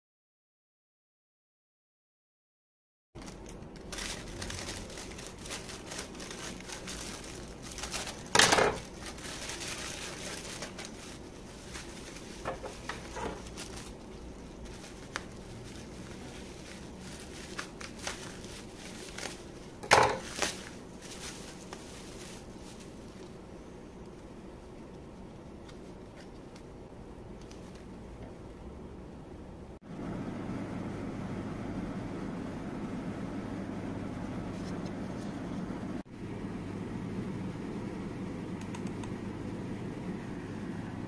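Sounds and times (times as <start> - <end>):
plastic and bubble wrap crinkling: 3.2 - 23.4.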